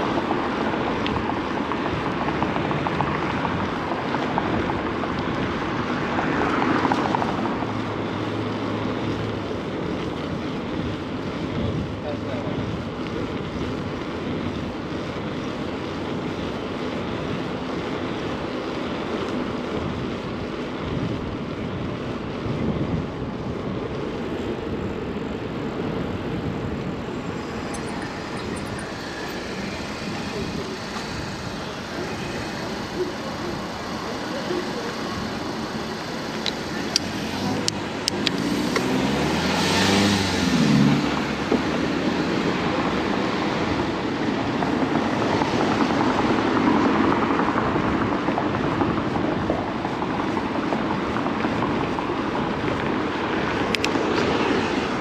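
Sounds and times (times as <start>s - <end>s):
wind rushing on microphone: 0.0s - 17.7s, 19.3s - 55.0s
city street traffic hum: 0.0s - 55.0s
vehicle passing by: 26.5s - 48.2s.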